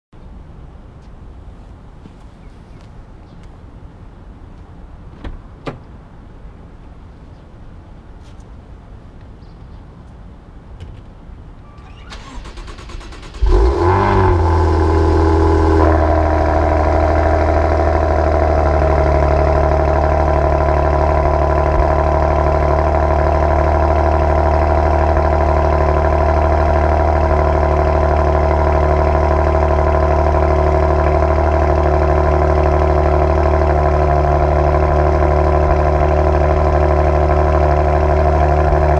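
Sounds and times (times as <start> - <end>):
engine cranking: 11.8 - 14.5
car engine revving and idling: 12.9 - 38.9.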